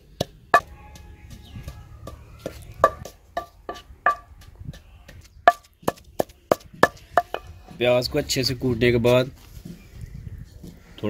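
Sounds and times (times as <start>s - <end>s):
pestle pounding in stone mortar: 0.2s - 7.5s.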